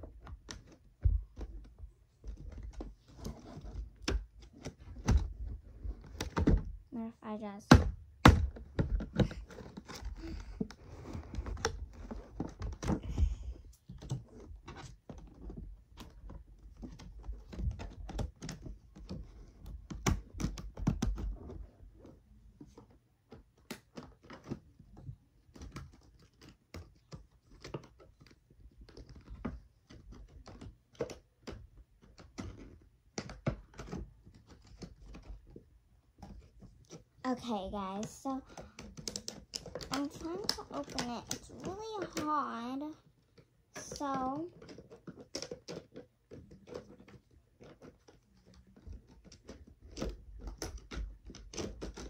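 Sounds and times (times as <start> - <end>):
toy packaging being handled: 36.2 - 52.0.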